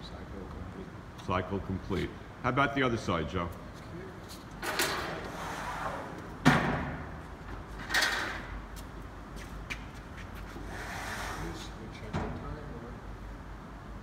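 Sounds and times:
heavy machine clunk: 6.4 - 7.1.

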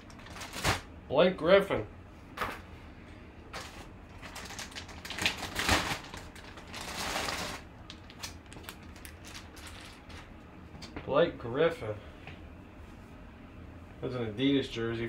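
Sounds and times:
plastic bag crinkling: 0.0 - 0.9, 3.6 - 10.4.

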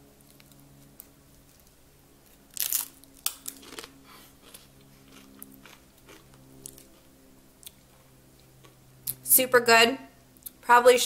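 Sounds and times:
biting crispy chip: 0.2 - 7.0
crunchy chewing: 0.2 - 9.2.

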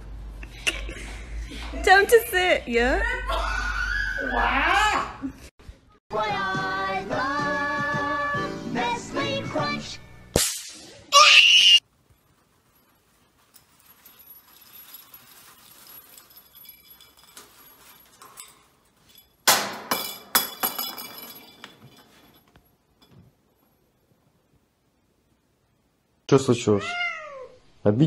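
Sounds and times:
faint rustling: 11.8 - 19.4
sharp clinks and knocks: 12.7 - 23.7.

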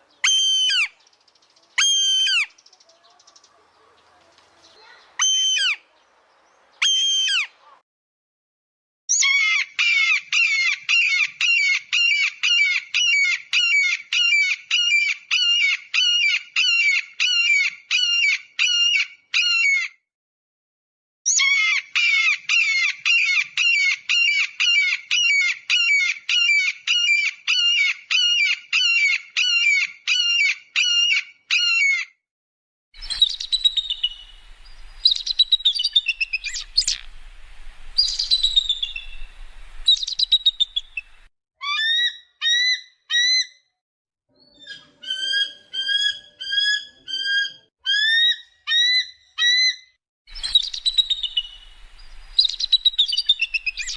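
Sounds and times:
eagle piping chatter: 33.0 - 37.3, 50.3 - 53.9
high falling bird calls: 33.0 - 41.3, 50.3 - 53.9
recording hiss and hum: 34.0 - 35.5, 36.6 - 38.0, 39.0 - 39.9, 51.2 - 52.4.

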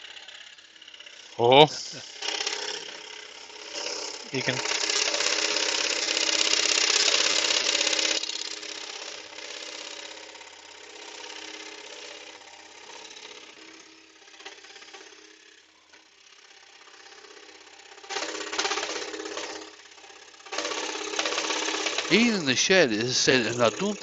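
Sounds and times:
scroll saw cutting wood: 2.0 - 15.3, 20.4 - 24.0.

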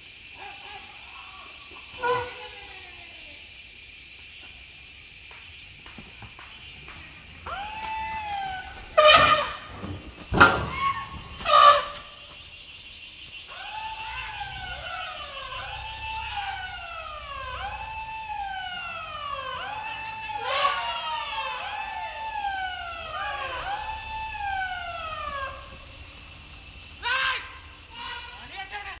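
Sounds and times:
wailing calls: 0.4 - 3.4, 7.2 - 12.3, 13.4 - 29.0
elephant trumpeting: 7.6 - 12.2, 13.5 - 18.5, 19.8 - 25.8.

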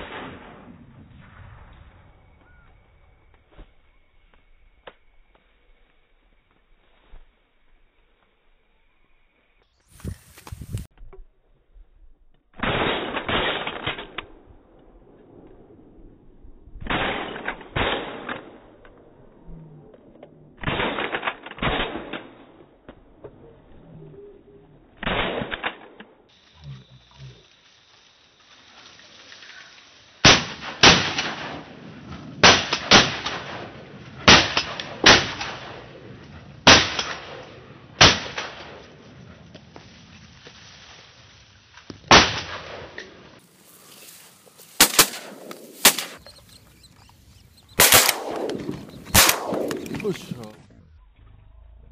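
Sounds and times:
shotgun shots: 12.6 - 14.2, 16.8 - 18.6, 20.6 - 22.4, 25.0 - 25.9, 30.2 - 31.8, 32.4 - 36.0, 36.7 - 38.8, 42.1 - 43.0, 44.8 - 46.7, 47.7 - 50.6.

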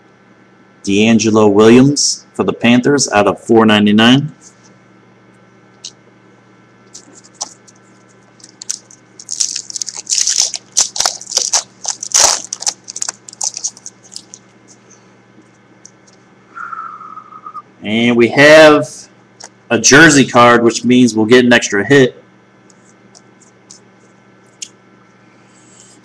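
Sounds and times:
steady low hum: 0.0 - 26.0
foil wrapper crinkling: 6.9 - 14.8.

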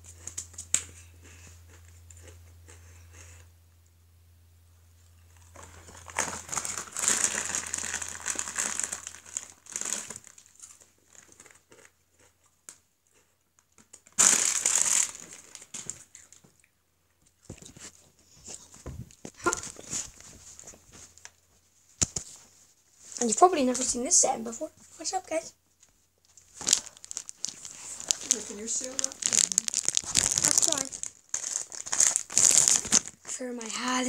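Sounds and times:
crisp packet crinkling: 5.4 - 11.6, 14.0 - 16.4, 26.2 - 33.3.

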